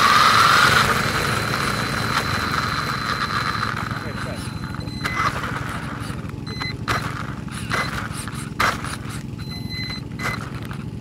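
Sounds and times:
knocks and scrapes: 4.6 - 11.0.

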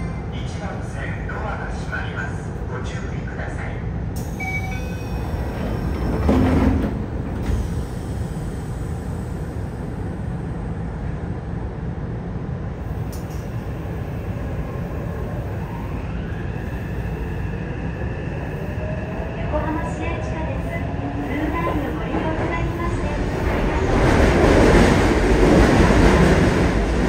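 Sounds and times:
low rumble inside train car: 0.0 - 27.0
subway doors sliding shut: 4.1 - 11.2, 12.8 - 27.0.

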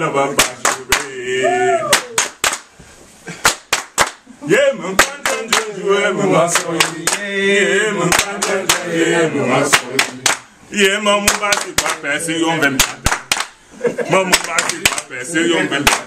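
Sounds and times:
rhythmic hand clapping: 0.0 - 1.2, 1.9 - 2.7, 3.4 - 4.3, 4.9 - 10.5, 11.1 - 13.6, 14.2 - 16.0
voices singing along: 0.0 - 2.6, 4.2 - 16.0.

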